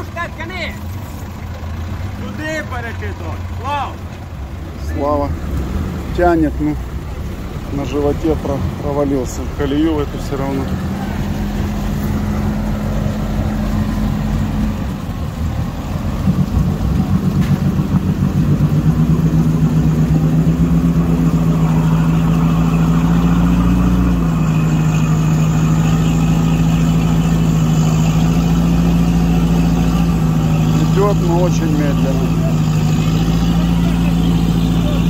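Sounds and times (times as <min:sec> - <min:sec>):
engine running under load: 0:00.0 - 0:35.0.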